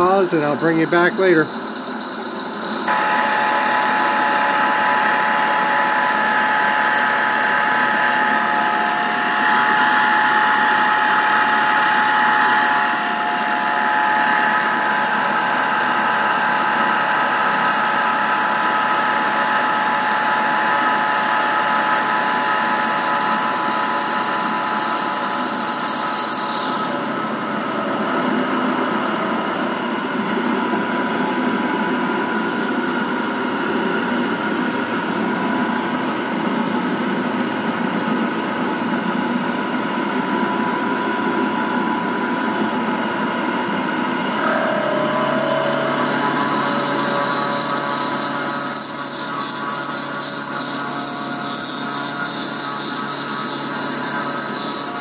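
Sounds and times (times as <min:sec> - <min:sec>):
milling machine cutting metal: 0:00.0 - 0:36.7, 0:39.2 - 0:55.0.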